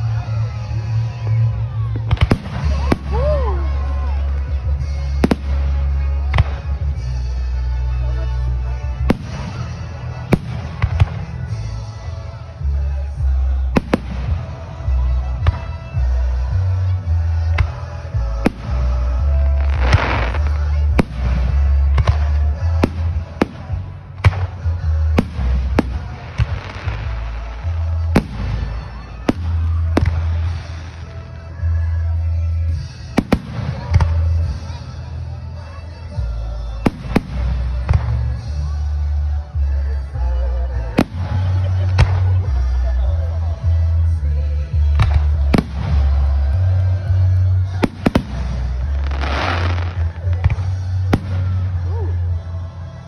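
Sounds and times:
fireworks crackling: 0.0s - 7.5s, 8.7s - 16.4s, 17.0s - 31.8s, 43.5s - 53.0s
music with heavy bass: 0.0s - 53.0s.

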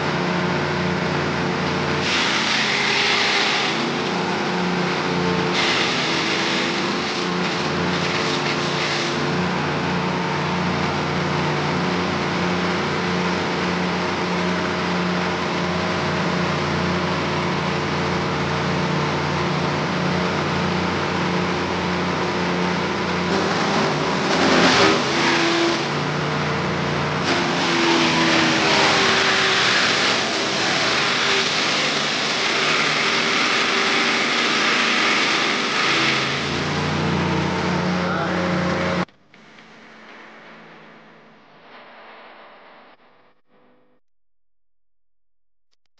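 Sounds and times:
wood chipper running: 0.0s - 41.0s
stalks being shredded: 1.6s - 10.1s, 23.3s - 26.1s, 27.1s - 39.1s.

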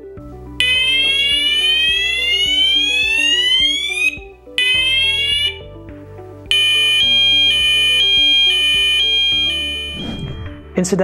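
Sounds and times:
background music: 0.0s - 11.0s
fire alarm rising sweep tone: 0.6s - 5.7s, 6.5s - 10.6s
steady high alarm tone: 0.6s - 5.7s, 6.5s - 10.5s.

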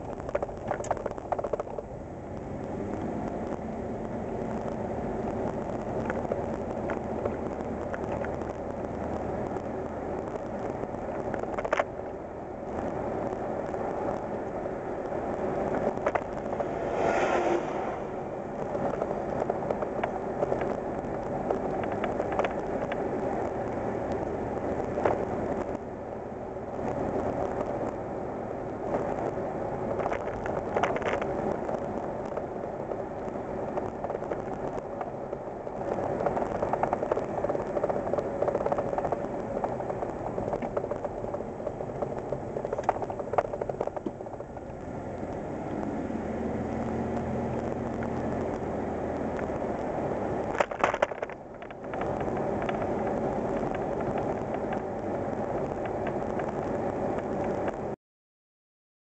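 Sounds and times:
clatter of clicks: 0.0s - 1.9s, 10.3s - 11.9s, 15.7s - 16.8s, 21.4s - 25.8s, 28.8s - 45.8s, 49.3s - 57.9s
road noise: 0.0s - 58.0s.

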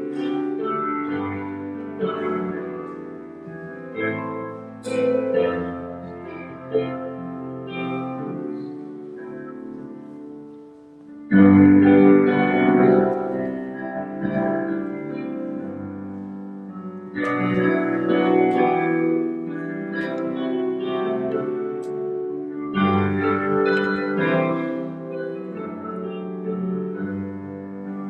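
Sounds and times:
keyboard sustained chords: 0.0s - 28.0s.

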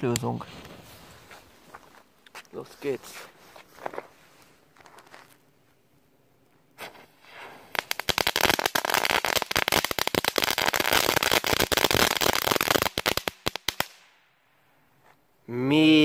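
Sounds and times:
crackling fireworks: 6.8s - 14.2s.

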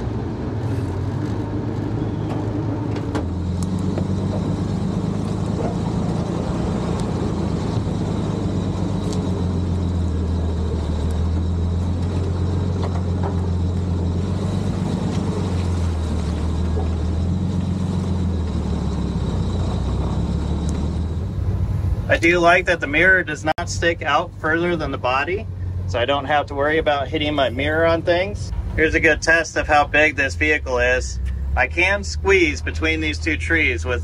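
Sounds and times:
truck engine running at low speed: 0.0s - 34.0s.

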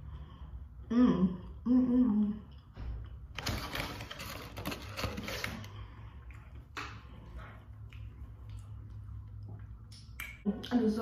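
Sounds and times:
food wrapper crinkling: 3.4s - 5.7s.

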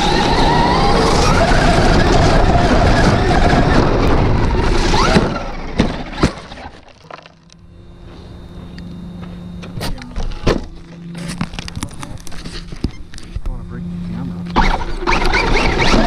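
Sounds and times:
toy truck rushing over leaves: 0.0s - 6.9s, 14.6s - 16.0s
steady low hum: 0.0s - 16.0s
truck tumbling knocks: 1.6s - 7.4s.

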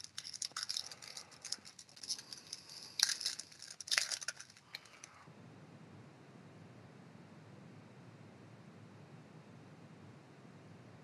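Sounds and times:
foil wrapper tearing and crinkling: 0.0s - 5.1s.

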